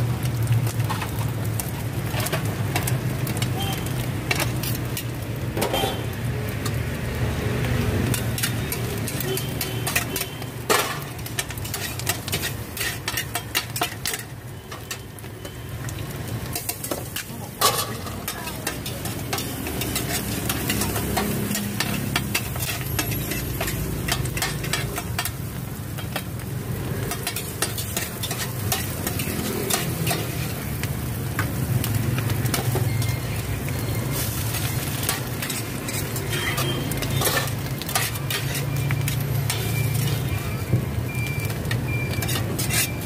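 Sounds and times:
food sizzling in hot oil: 0:00.0 - 0:43.0
metal spatulas scraping griddle: 0:08.1 - 0:15.0, 0:16.5 - 0:26.2, 0:27.0 - 0:31.4, 0:34.0 - 0:40.3, 0:41.6 - 0:43.0.

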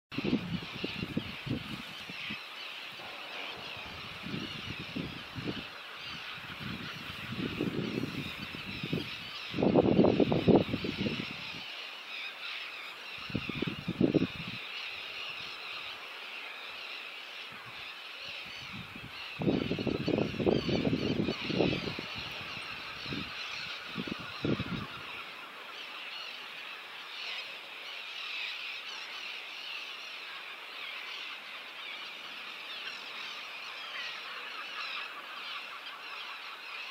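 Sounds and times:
wind buffeting microphone: 0:00.1 - 0:11.6, 0:13.1 - 0:14.7, 0:17.5 - 0:25.5
cormorants calling: 0:10.3 - 0:36.9.

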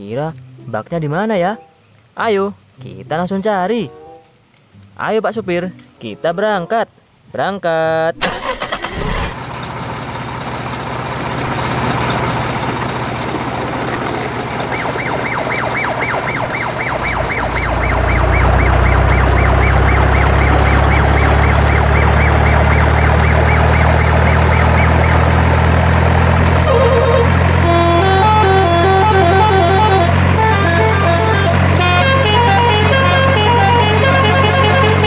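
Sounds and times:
truck engine running: 0:08.2 - 0:35.0
warbling siren tone: 0:14.5 - 0:35.0.

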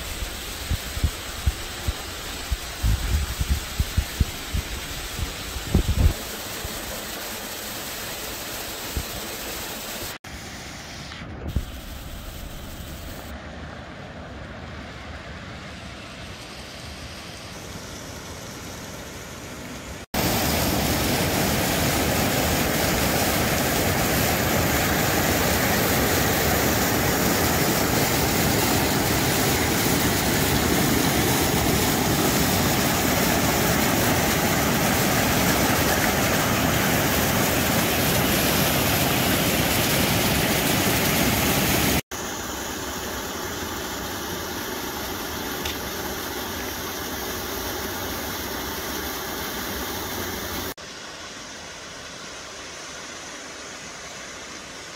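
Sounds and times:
waterfall roaring: 0:18.6 - 0:51.4.

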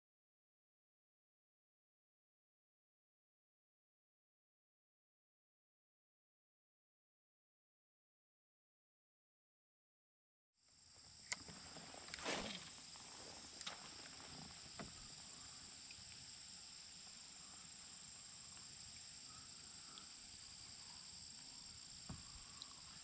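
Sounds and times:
high-pitched insect chorus: 0:10.6 - 0:23.0
short swish: 0:12.2 - 0:12.9.

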